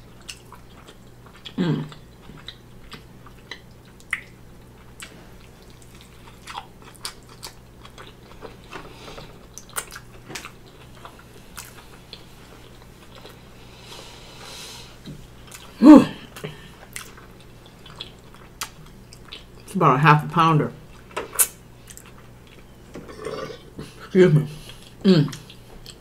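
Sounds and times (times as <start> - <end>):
chewing with wet mouth smacks: 0.1 - 13.4, 15.0 - 19.7, 20.9 - 22.8.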